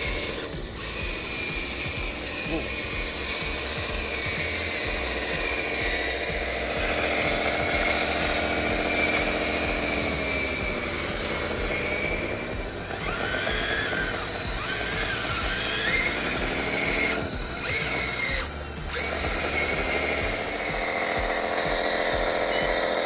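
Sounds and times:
toy bulldozer motors whining: 0.0 - 23.0.

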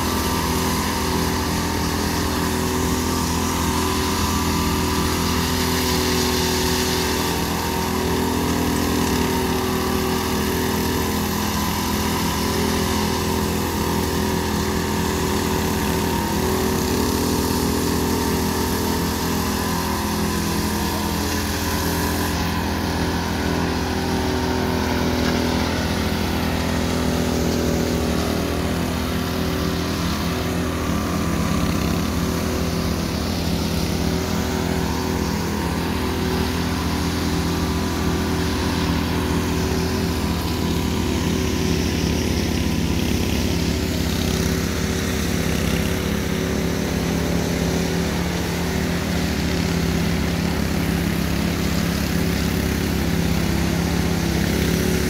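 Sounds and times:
power trowel engine running: 0.0 - 55.0.

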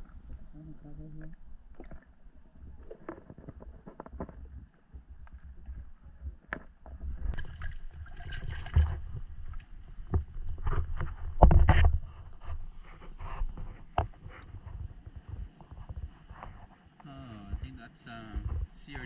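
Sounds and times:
water sloshing and splashing: 1.3 - 12.8
muffled knocks and bumps: 17.5 - 18.9.

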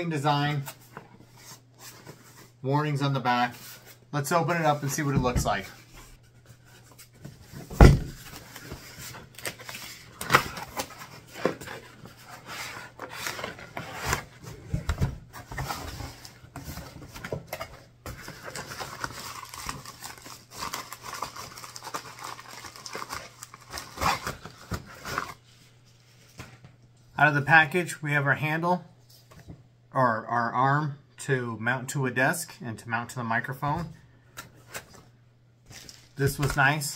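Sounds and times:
cardboard flaps rustling and scraping: 4.6 - 19.6
cardboard box thump: 7.7 - 8.2
bubble wrap rustling: 18.4 - 26.3, 35.7 - 36.6.

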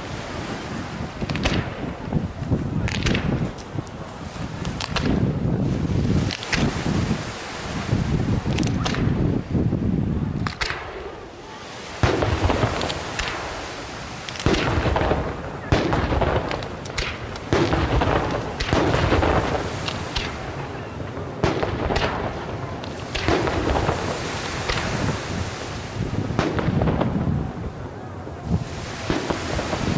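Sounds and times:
firework shells bursting: 1.2 - 2.0, 4.5 - 5.3, 6.2 - 6.8, 12.0 - 25.3, 28.7 - 29.9.

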